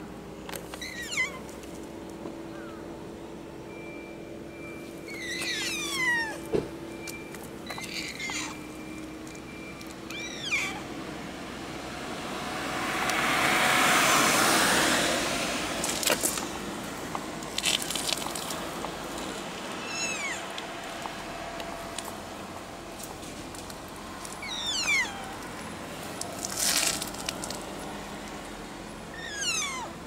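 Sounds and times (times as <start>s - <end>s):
cat meowing: 0.8s - 1.5s, 5.1s - 6.5s, 7.7s - 8.7s, 10.1s - 10.9s, 19.8s - 20.5s, 24.4s - 25.5s, 29.1s - 30.0s
car passing: 7.9s - 30.0s.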